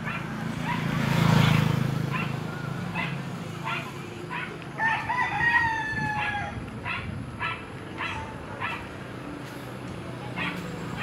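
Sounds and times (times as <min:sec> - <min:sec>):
dog barking: 0:00.0 - 0:01.0, 0:02.0 - 0:04.6, 0:06.2 - 0:09.0, 0:10.4 - 0:11.0
rooster crowing: 0:04.8 - 0:06.6.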